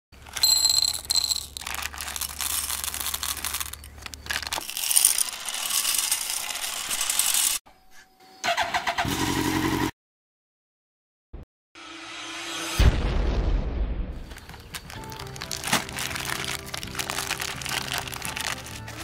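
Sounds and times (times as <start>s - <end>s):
candies rattling as poured: 0.2s - 7.6s, 14.3s - 19.0s.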